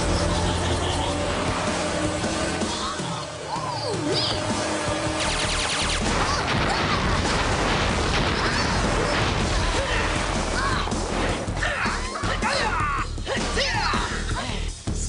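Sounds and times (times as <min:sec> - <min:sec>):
explosion effect: 0:05.2 - 0:11.6.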